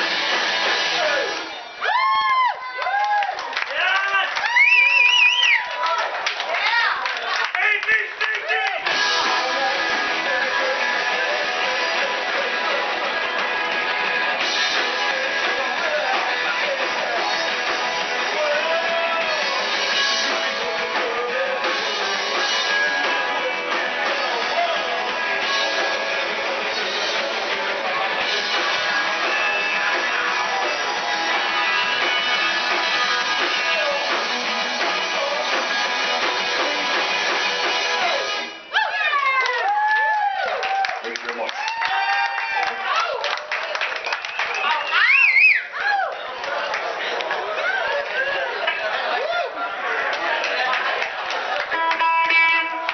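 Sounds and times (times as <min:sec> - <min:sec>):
rock band playing: 0:00.0 - 0:02.4, 0:07.6 - 0:39.4, 0:48.4 - 0:52.9
person singing: 0:08.9 - 0:13.1, 0:14.5 - 0:32.3, 0:33.2 - 0:36.2, 0:51.7 - 0:52.9.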